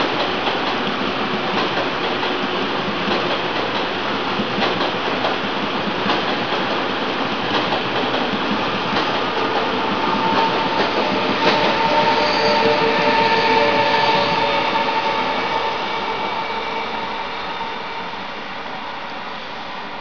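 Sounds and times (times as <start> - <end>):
clacks at rail joints: 0.0 - 13.2
train wheels rumbling on rails: 0.0 - 20.0.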